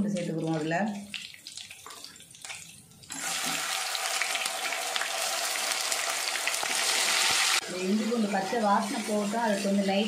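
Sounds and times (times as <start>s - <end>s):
hot oil sizzling: 3.1s - 10.0s.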